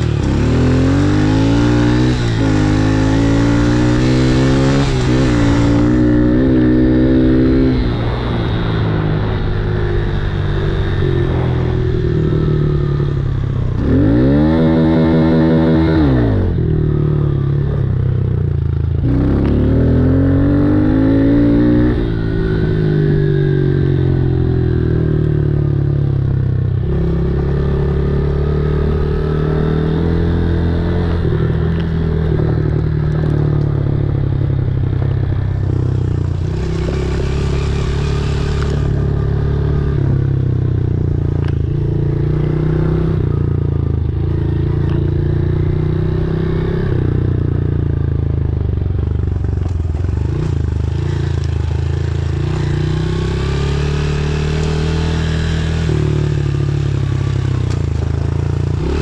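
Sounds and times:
dirt bike engine revving: 0:00.0 - 0:17.8, 0:18.9 - 0:25.1, 0:35.6 - 0:43.5, 0:49.6 - 0:59.0.

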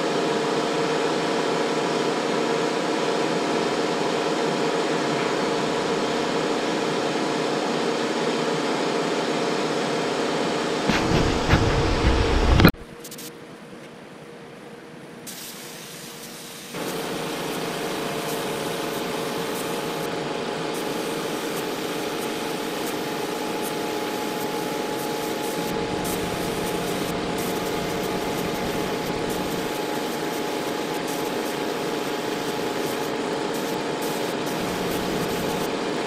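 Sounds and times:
steady low hum: 0:10.5 - 0:13.0, 0:16.8 - 0:36.0
paint spray gun hissing: 0:15.3 - 0:36.0.

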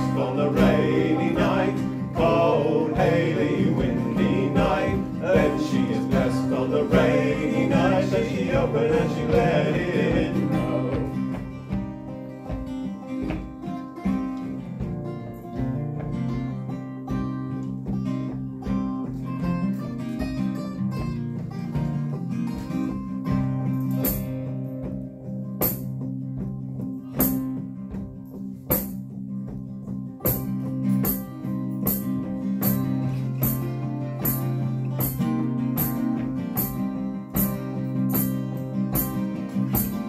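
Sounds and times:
acoustic guitars: 0:00.0 - 0:40.0
banjo: 0:00.0 - 0:40.0
sharp percussive clicks: 0:30.2 - 0:40.0.

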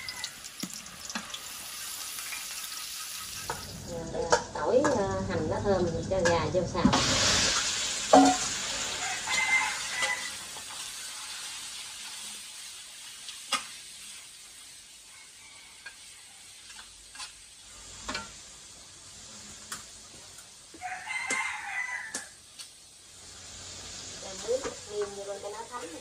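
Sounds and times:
rooster crowing: 0:00.0 - 0:00.4, 0:08.9 - 0:10.5, 0:15.0 - 0:16.5, 0:20.7 - 0:22.4
chicken sizzling in a wok: 0:00.0 - 0:26.0.

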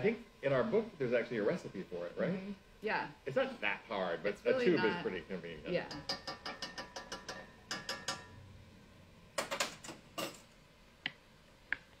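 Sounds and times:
metal spoon clinking on a pot: 0:05.9 - 0:08.4.

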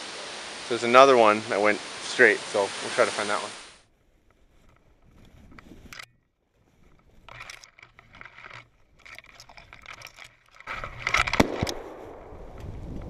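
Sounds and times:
sudden rustling and rushing: 0:04.2 - 0:13.0.

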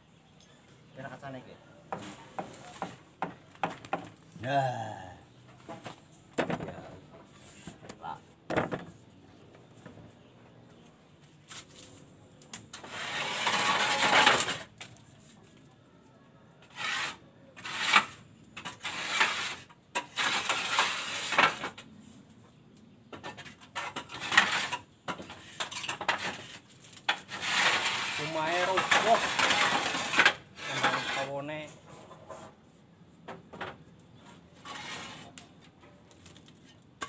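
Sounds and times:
clay roof tiles scraping and clinking: 0:05.5 - 0:09.1, 0:12.6 - 0:15.5, 0:16.6 - 0:21.9, 0:23.0 - 0:32.6, 0:33.3 - 0:37.0.

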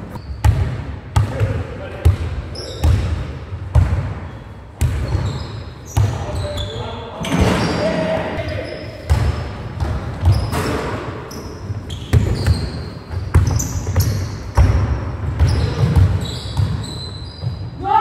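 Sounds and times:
basketball bouncing in a hall: 0:00.0 - 0:18.0
trainers squeaking on court: 0:00.1 - 0:00.6, 0:02.5 - 0:03.0, 0:04.2 - 0:09.4, 0:10.2 - 0:14.7, 0:15.4 - 0:17.8.

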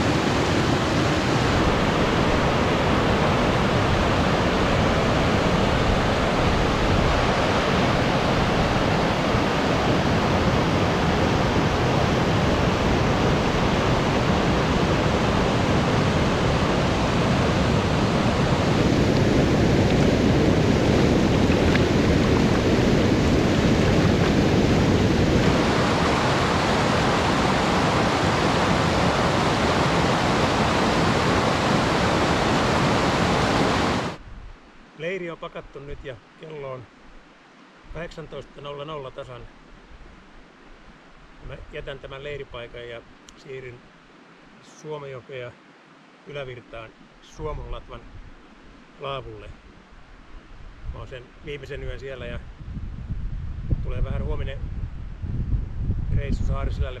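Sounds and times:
river water rushing: 0:00.0 - 0:35.0.

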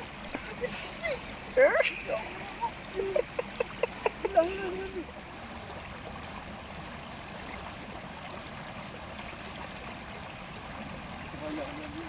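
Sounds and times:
stream running over rocks: 0:00.0 - 0:12.0.

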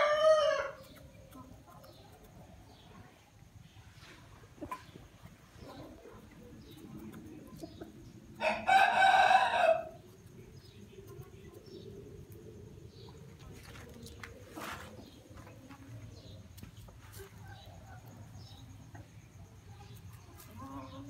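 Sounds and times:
rooster crowing: 0:00.0 - 0:00.8, 0:08.4 - 0:10.0
faint hen clucks: 0:00.0 - 0:21.0.

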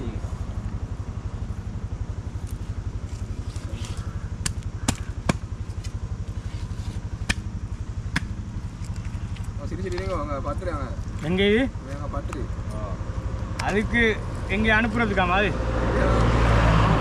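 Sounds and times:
small engine puttering: 0:00.3 - 0:15.5
sharp clicks: 0:03.2 - 0:06.0.

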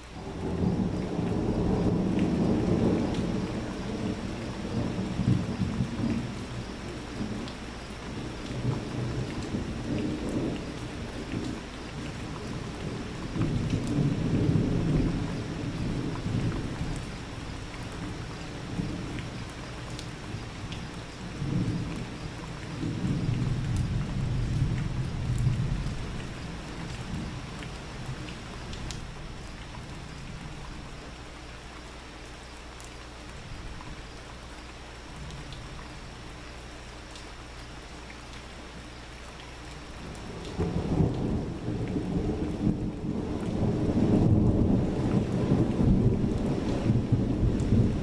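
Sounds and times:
steady rain: 0:00.0 - 0:48.0
rolling thunder: 0:00.2 - 0:19.5, 0:20.1 - 0:30.6, 0:40.0 - 0:48.0
raindrop ticks: 0:00.9 - 0:31.9, 0:36.6 - 0:48.0.

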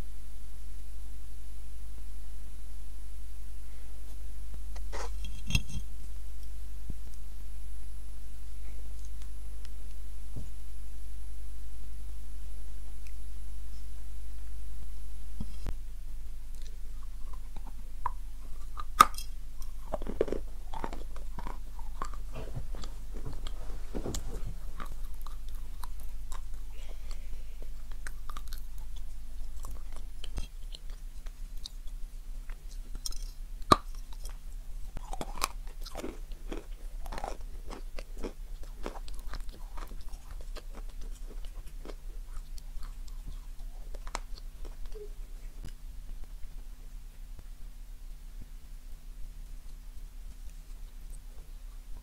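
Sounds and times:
steady low hum: 0:00.0 - 0:52.0
crackly chewing: 0:15.4 - 0:52.0
crunchy bites: 0:16.4 - 0:45.0.

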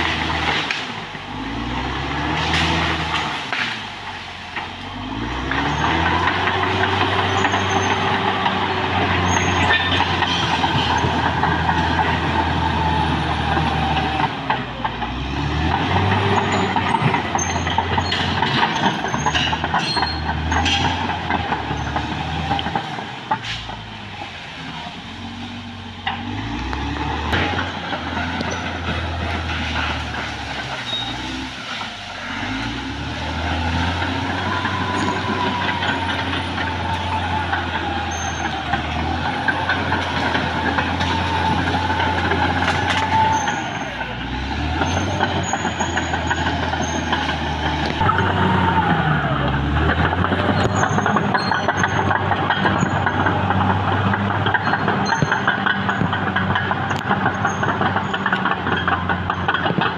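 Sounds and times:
bulldozer diesel engine under load: 0:00.0 - 0:59.9.

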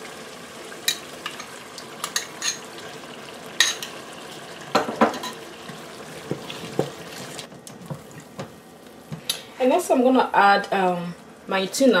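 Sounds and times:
stew sizzling: 0:00.0 - 0:12.0
clinks and knocks against pot: 0:04.7 - 0:05.4.

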